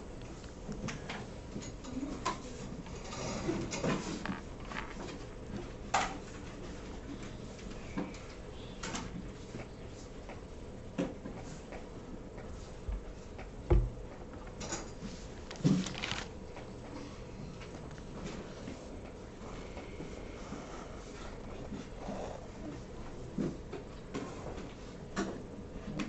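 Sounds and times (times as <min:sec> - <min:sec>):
small objects handled at desk: 0:02.8 - 0:05.4, 0:14.5 - 0:16.7.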